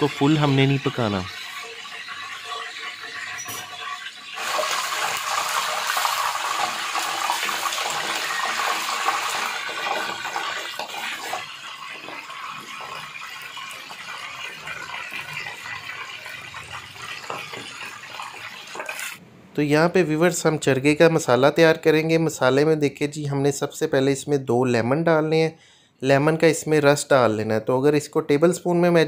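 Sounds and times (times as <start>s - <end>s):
oil sizzling and bubbling: 0.0s - 19.2s.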